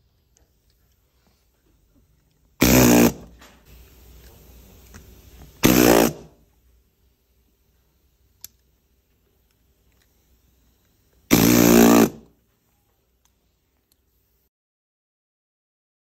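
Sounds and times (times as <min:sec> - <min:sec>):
handheld motorized device buzz: 0:02.6 - 0:03.3, 0:05.6 - 0:06.4, 0:11.3 - 0:12.3.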